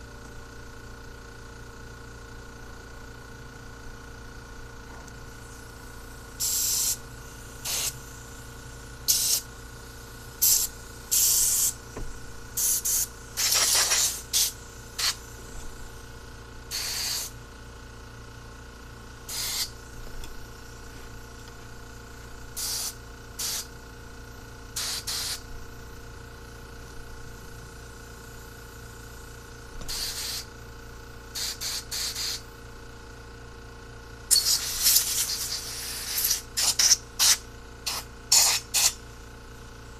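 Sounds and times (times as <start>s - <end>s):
steady low hum: 0.0s - 39.9s
air blow gun hissing spurts: 6.4s - 8.0s, 9.0s - 9.5s, 10.4s - 11.8s, 12.6s - 15.3s, 16.7s - 17.3s, 19.3s - 19.8s, 22.6s - 23.7s, 24.8s - 25.4s, 31.4s - 32.4s, 34.3s - 39.0s.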